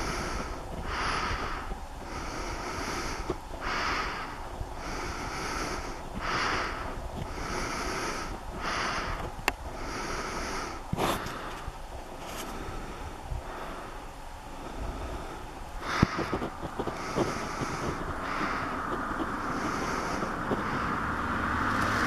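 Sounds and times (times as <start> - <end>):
low wind rumble: 0.0 - 22.0
person breathing: 0.0 - 22.0.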